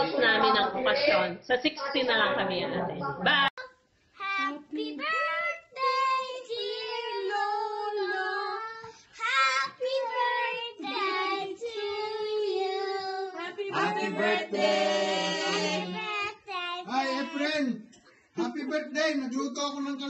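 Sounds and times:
children and women singing: 4.2 - 17.6.

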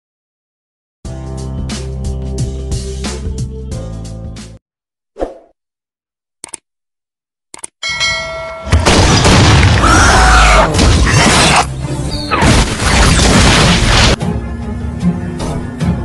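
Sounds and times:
music: 1.0 - 4.6, 9.8 - 16.0
short ringing chime: 7.8 - 8.8
explosion and crash effects: 8.7 - 11.7, 12.3 - 14.2.

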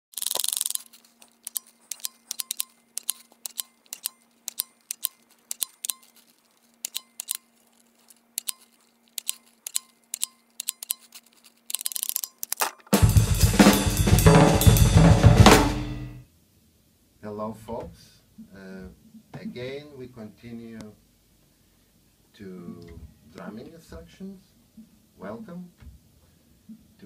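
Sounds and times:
label maker clicking: 0.1 - 6.0.

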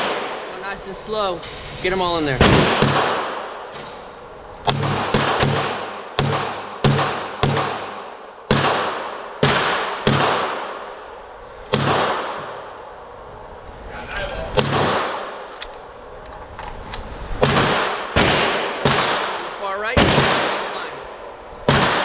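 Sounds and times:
pistol shots echoing indoors: 2.4 - 3.7, 4.6 - 11.0, 11.7 - 12.7, 14.6 - 15.4, 17.4 - 20.8, 21.6 - 22.0.

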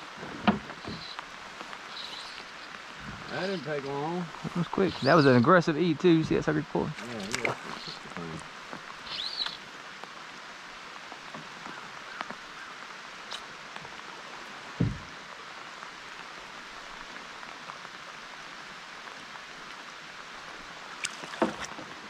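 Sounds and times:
water hissing: 0.0 - 5.5, 6.7 - 9.6
dull low thump: 14.8 - 15.1.

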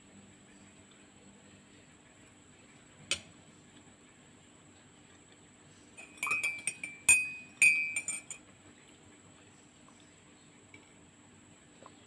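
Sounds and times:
spoon clinking in ceramic mug: 6.0 - 8.4.

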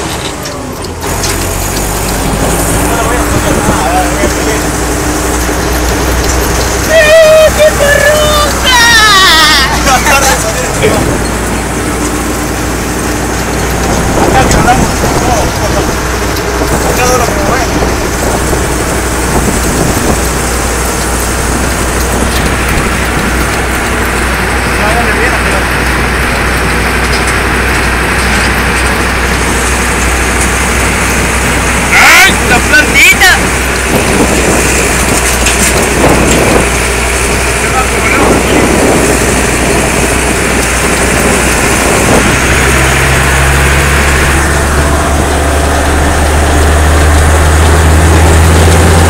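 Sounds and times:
tractor diesel engine running: 0.0 - 49.0.

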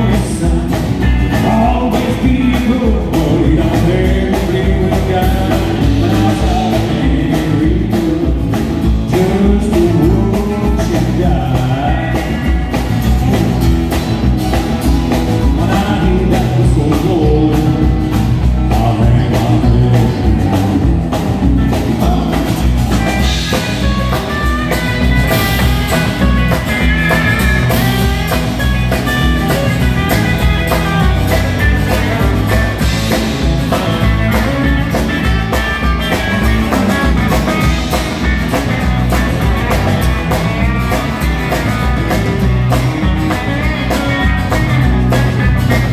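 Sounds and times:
man singing: 0.0 - 13.6, 15.2 - 24.8, 29.5 - 38.3
electric lead guitar: 0.0 - 45.9
live country rock band: 0.0 - 45.9.

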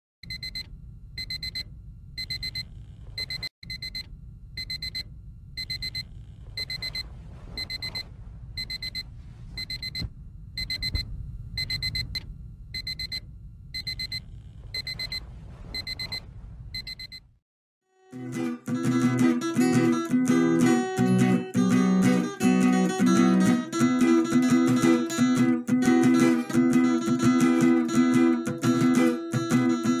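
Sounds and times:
low steady rumble: 0.4 - 17.0
alarm clock beeping: 5.6 - 6.0, 6.6 - 7.0, 7.6 - 8.0, 9.6 - 10.0, 10.6 - 11.0, 13.8 - 14.2.

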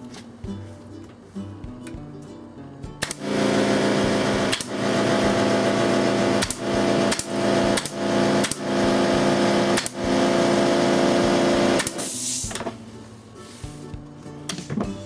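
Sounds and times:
nail gun shots: 3.0 - 3.4, 4.4 - 4.8, 6.3 - 8.9, 9.7 - 10.1, 11.8 - 12.7.

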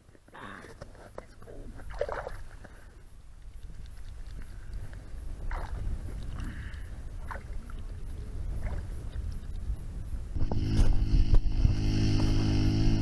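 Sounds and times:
wind rumbling on microphone: 1.5 - 13.0
buzzing hum: 5.1 - 13.0.

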